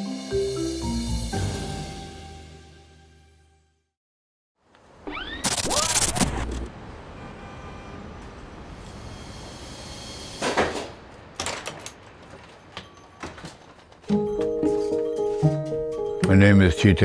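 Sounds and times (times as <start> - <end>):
electronic glitch with rising tones: 5.2 - 6.7
city street traffic hum: 5.7 - 16.4.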